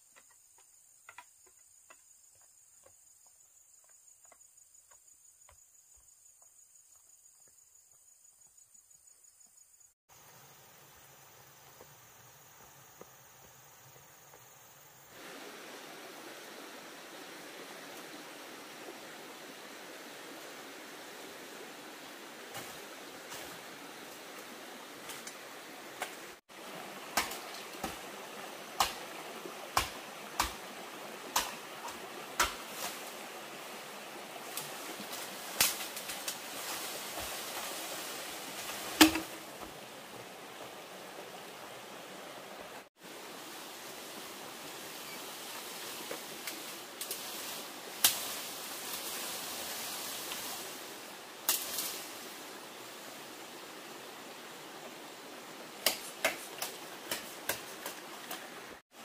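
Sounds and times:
blade chopping bamboo: 27.2 - 28.0, 28.8 - 29.2, 29.8 - 30.7, 31.3 - 32.8, 39.0 - 39.4
bamboo pole clattering: 38.6 - 39.6.

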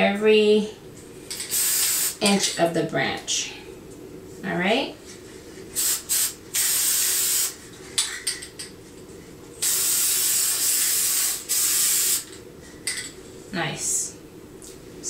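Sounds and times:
aerosol spray can hissing: 1.5 - 2.2, 5.8 - 7.6, 9.6 - 12.3.

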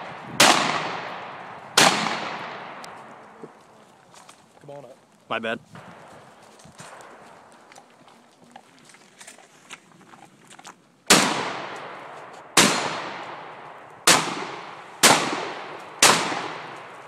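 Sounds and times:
rifle gunshots with echo: 0.0 - 3.3, 11.1 - 17.0.

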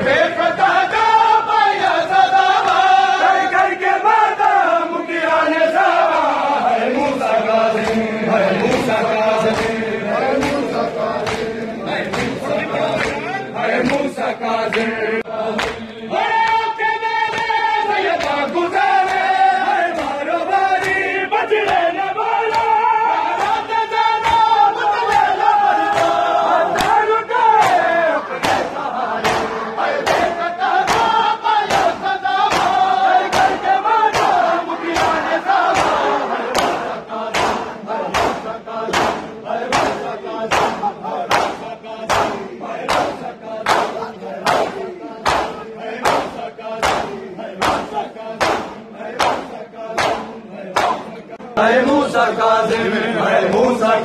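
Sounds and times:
men chanting and shouting: 0.0 - 54.0
men singing in chorus: 0.0 - 54.0
hands slapping bare chests: 7.7 - 12.4, 15.5 - 16.7, 18.2 - 19.3, 19.9 - 20.2, 22.5 - 22.8, 23.4 - 27.0, 27.6 - 51.1.

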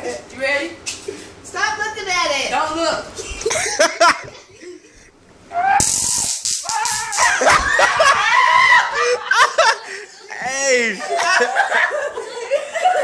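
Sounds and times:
stun gun crackling: 5.8 - 7.4
people yelling and laughing: 6.7 - 13.0.

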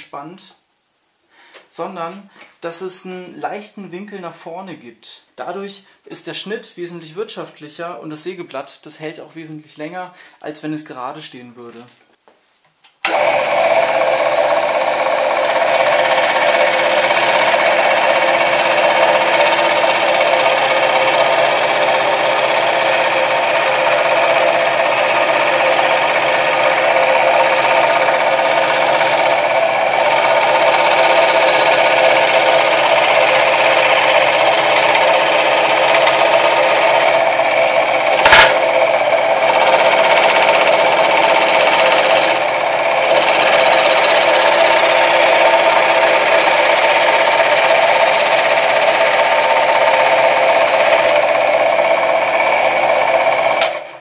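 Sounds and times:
scroll saw cutting wood: 13.0 - 54.0
sharp knock: 38.2 - 38.6.

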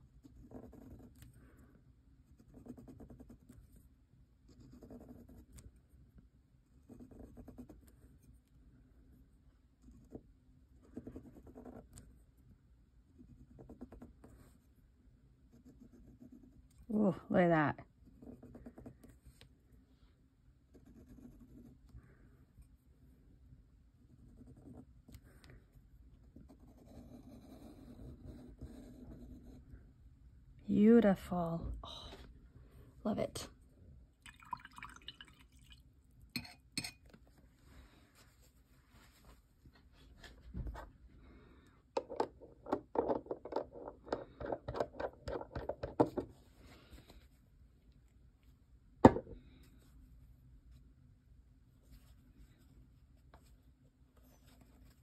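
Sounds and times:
pen nib scratching paper: 0.2 - 1.3, 2.2 - 3.8, 4.4 - 5.8, 6.8 - 8.4, 9.8 - 12.2, 13.1 - 14.7, 15.5 - 16.8, 24.1 - 25.2, 26.2 - 29.6.

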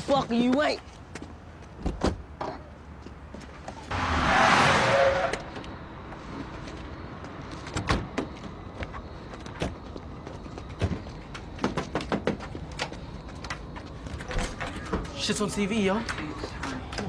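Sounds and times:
car passing: 3.9 - 9.3.

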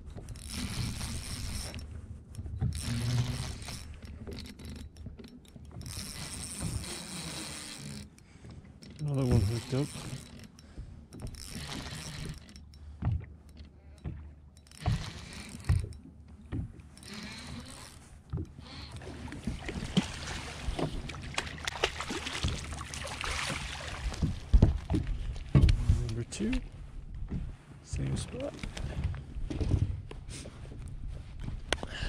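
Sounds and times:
knocks and thumps: 24.1 - 26.0.

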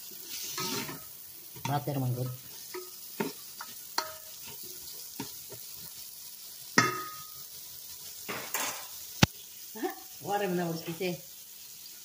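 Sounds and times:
onions sizzling in butter: 0.0 - 12.0
paddle knocking on pot: 6.8 - 7.2.

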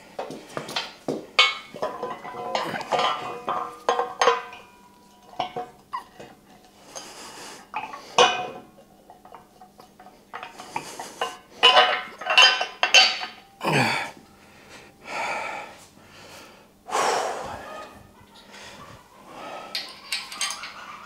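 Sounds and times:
metal parts clinking: 19.7 - 20.8.

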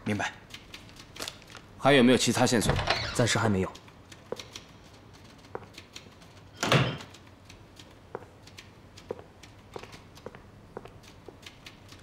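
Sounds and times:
wooden door shutting: 2.6 - 3.4.

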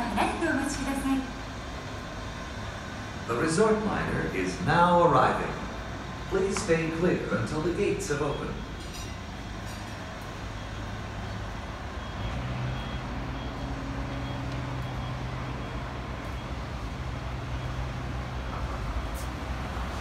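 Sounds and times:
monorail electric drive humming: 0.0 - 20.0
faint high beeps: 6.2 - 9.2, 10.2 - 18.7.

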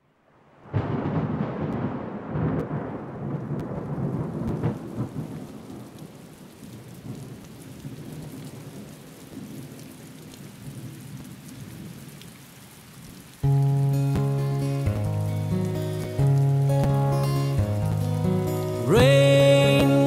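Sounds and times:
steady rain: 0.0 - 20.0
thunder rumbling: 0.6 - 9.8.

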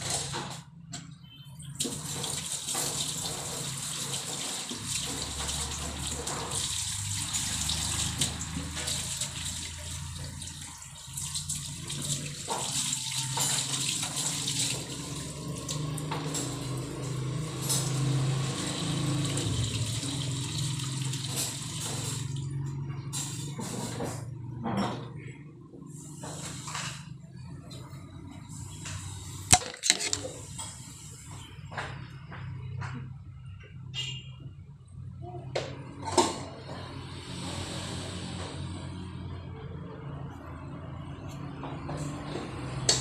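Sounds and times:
water running from tap: 1.8 - 22.6.

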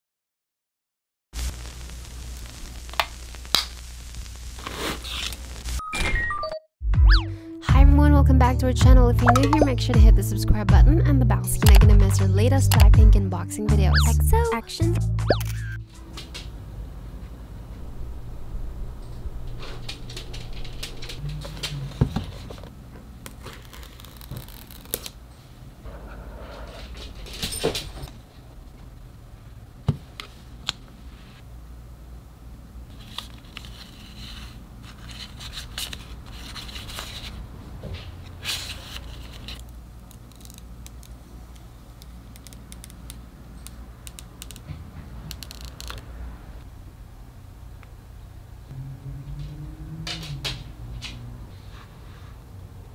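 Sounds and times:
protective film peeling: 23.2 - 25.2, 38.7 - 41.2.

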